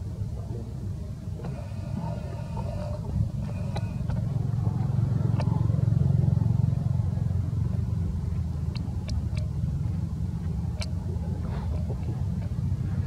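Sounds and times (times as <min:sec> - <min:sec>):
low steady rumble: 0:00.0 - 0:13.0
faint sharp clicks: 0:08.7 - 0:09.5, 0:10.4 - 0:11.0.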